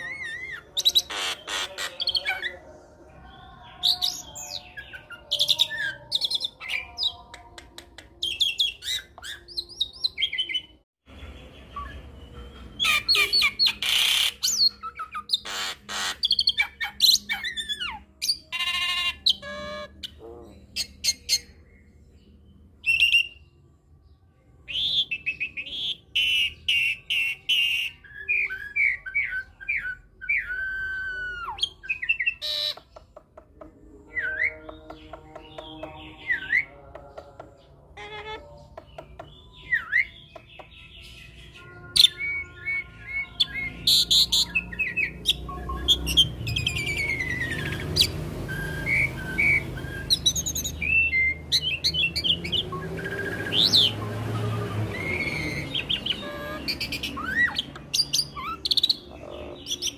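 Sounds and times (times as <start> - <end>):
bird singing whistles and trills: 20.8 - 23.5, 24.7 - 33.2, 34.0 - 37.5, 38.1 - 59.9.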